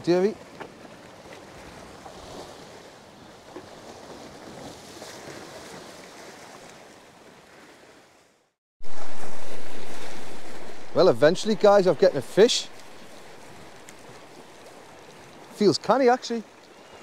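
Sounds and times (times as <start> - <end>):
wind: 0.0 - 17.0
surf washing against rocks: 8.8 - 17.0.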